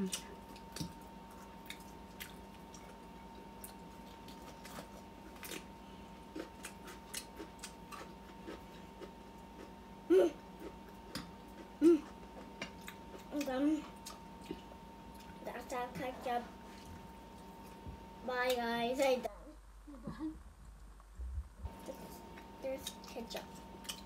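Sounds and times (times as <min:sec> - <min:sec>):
person chewing: 0:00.0 - 0:09.8, 0:10.5 - 0:15.4, 0:23.7 - 0:24.0.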